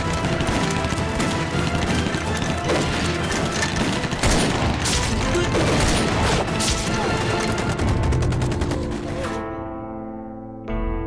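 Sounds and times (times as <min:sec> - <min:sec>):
rifle shots: 0:00.0 - 0:09.3.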